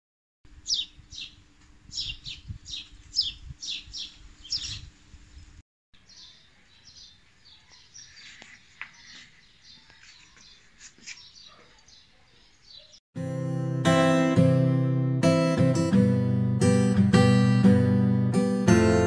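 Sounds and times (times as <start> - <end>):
birds chirping: 0.5 - 13.0.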